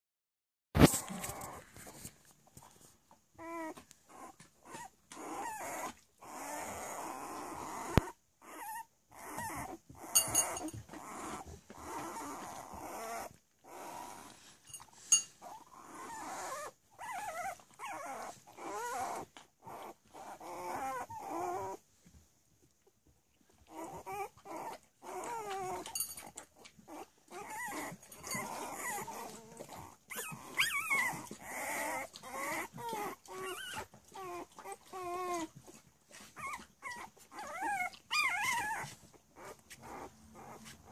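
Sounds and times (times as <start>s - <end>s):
puppies crying: 26.7s - 40.8s.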